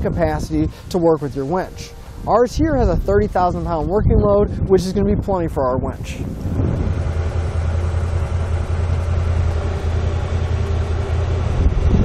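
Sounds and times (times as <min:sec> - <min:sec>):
electric winch humming: 0:00.3 - 0:03.6, 0:06.2 - 0:12.0.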